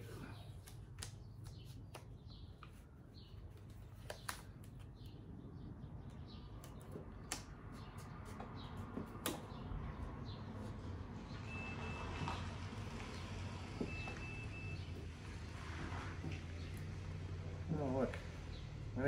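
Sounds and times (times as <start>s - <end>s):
tape clicking and crinkling: 0.5s - 5.4s, 6.0s - 9.6s
vehicle engine rumble: 5.2s - 19.0s
reversing alarm beeps: 11.4s - 12.4s, 13.8s - 15.0s.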